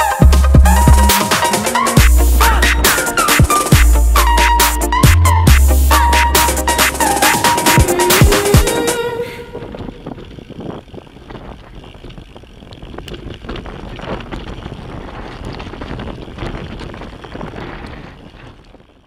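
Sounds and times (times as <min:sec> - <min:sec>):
bike rattling: 0:00.0 - 0:19.0
bike tyres crunching over ground: 0:06.8 - 0:19.0
wind buffeting microphone: 0:07.0 - 0:19.0.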